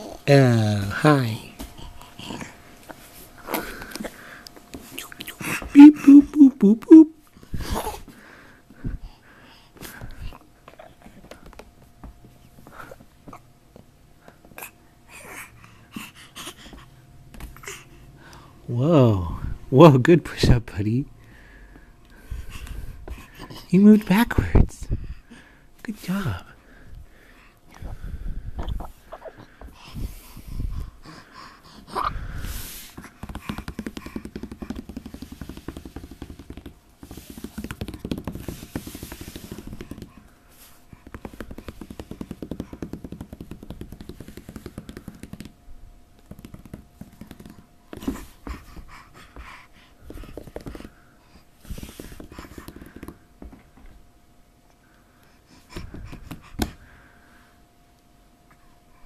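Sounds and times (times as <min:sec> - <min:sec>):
faint steady hum: 0:00.0 - 0:59.0
baby breathing and grunting: 0:01.5 - 0:06.2, 0:07.5 - 0:08.1, 0:14.5 - 0:17.0, 0:22.2 - 0:23.8, 0:27.7 - 0:34.7
rubbing against foam mat: 0:32.4 - 0:45.6, 0:46.2 - 0:51.0, 0:51.6 - 0:53.2.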